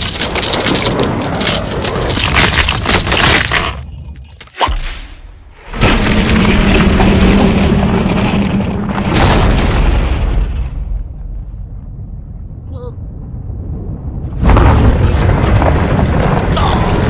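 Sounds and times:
heavy rumble of ice: 0.0 - 4.6, 5.2 - 17.0
ice crackling and splitting: 0.0 - 4.8
sharp ice crack: 0.0 - 5.0.

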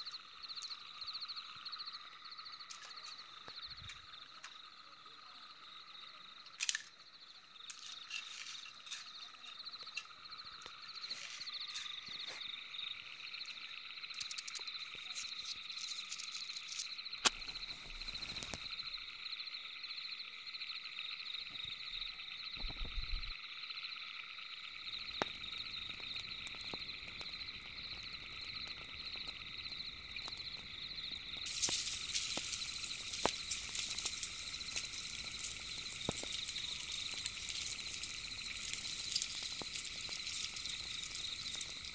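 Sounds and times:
animals calling in pulsing trills: 7.2 - 41.9
wood fire crackling: 14.2 - 19.0, 21.5 - 23.3, 24.8 - 41.9
small clicks: 15.9 - 18.7.

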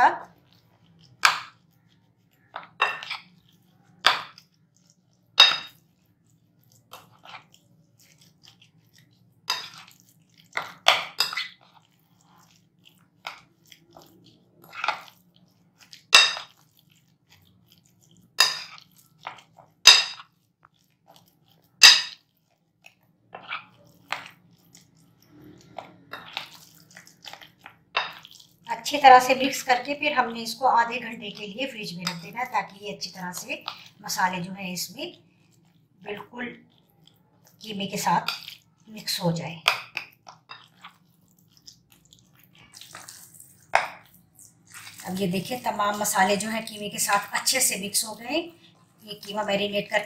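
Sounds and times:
spoon scraping glass bowl: 2.4 - 3.4, 10.6 - 12.5, 25.2 - 28.3.

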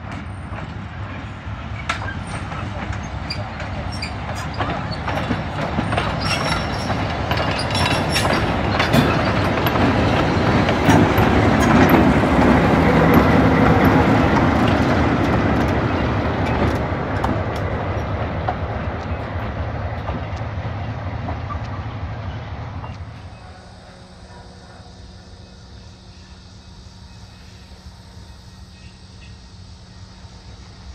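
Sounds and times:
train wheels clicking over rail joints: 0.0 - 22.1
diesel locomotive engine running: 0.0 - 30.9.

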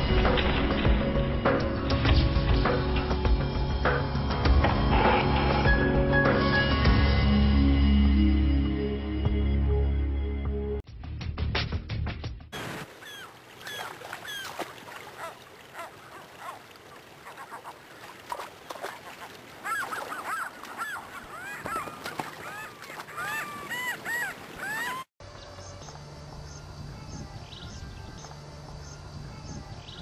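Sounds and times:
rushing river water: 12.6 - 25.1
gulls calling: 12.6 - 26.0.

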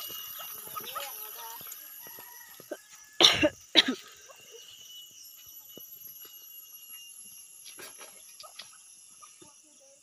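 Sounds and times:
person coughing: 3.2 - 4.1.

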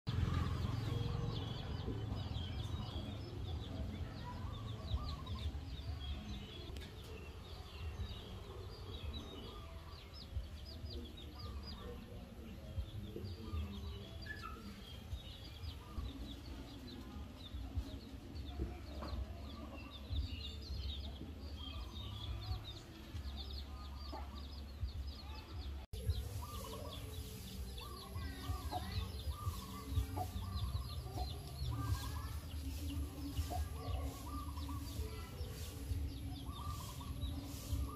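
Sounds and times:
small birds chirping: 0.1 - 37.9
chickens clucking: 25.9 - 37.9.

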